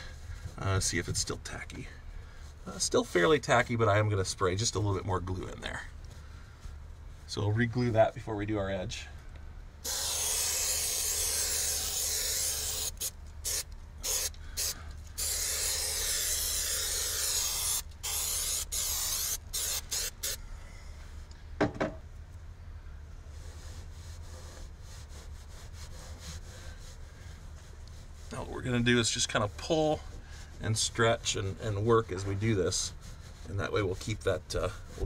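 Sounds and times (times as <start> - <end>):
aerosol can spraying: 9.8 - 20.4.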